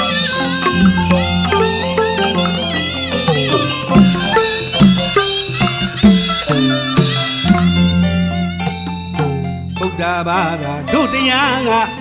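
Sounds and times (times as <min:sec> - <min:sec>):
struck ringing notes: 0:00.0 - 0:10.0
sliding melody: 0:00.0 - 0:11.9.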